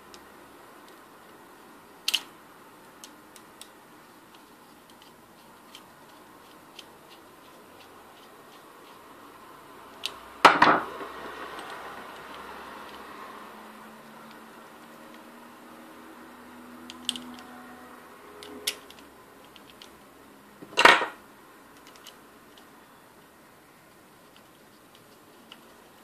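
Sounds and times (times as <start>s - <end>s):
small metal parts clicking: 3.0s - 9.0s, 16.9s - 17.5s, 21.8s - 22.7s.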